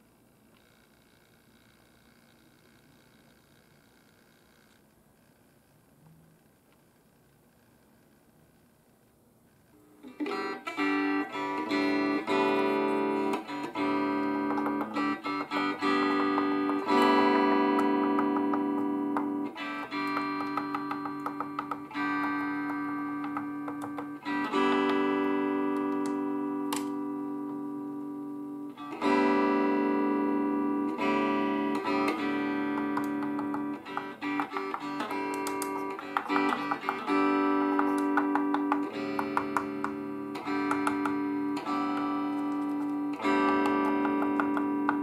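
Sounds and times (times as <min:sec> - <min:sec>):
guitar chords through amp: 0:10.0 - 0:45.0
chopstick tapping circuit board: 0:14.4 - 0:15.2, 0:15.8 - 0:24.2, 0:32.6 - 0:45.0.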